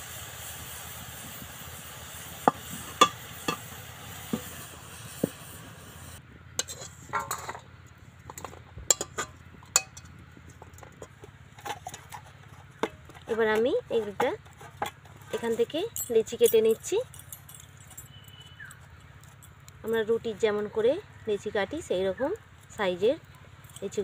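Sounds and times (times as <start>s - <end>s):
sizzling hiss: 0.0s - 6.8s
metal spatula scraping a wok: 6.6s - 7.6s.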